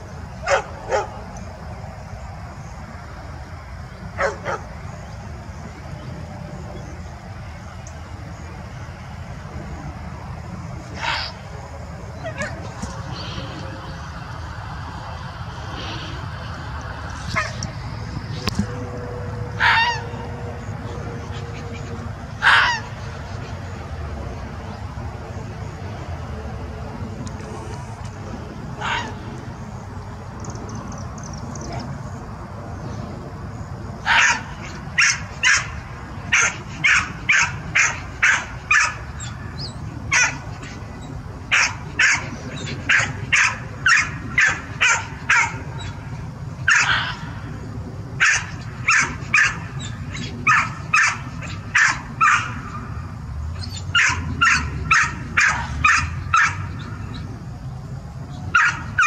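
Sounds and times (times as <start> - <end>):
dog barking: 0.4 - 1.2, 4.2 - 4.6, 34.0 - 35.7, 36.3 - 39.0, 40.1 - 40.4, 41.5 - 42.3, 42.9 - 45.9, 46.7 - 47.2, 48.2 - 49.6, 50.4 - 52.6, 54.0 - 56.6, 58.6 - 59.0.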